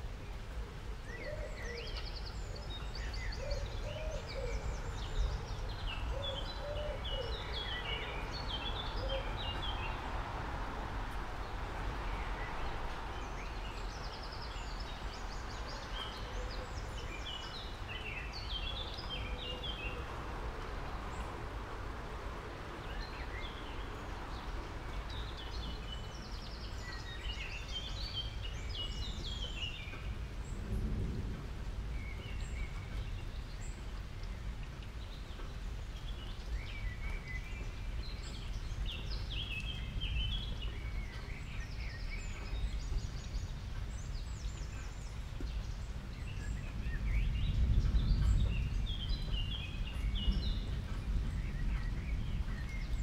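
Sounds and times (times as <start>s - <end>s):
small birds chirping: 31.9s - 53.0s.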